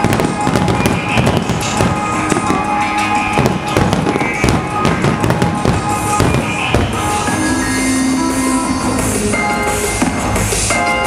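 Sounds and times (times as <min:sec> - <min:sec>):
firework shells bursting: 0:00.0 - 0:07.5
firework crackles: 0:00.0 - 0:09.2
music playing: 0:00.0 - 0:11.0.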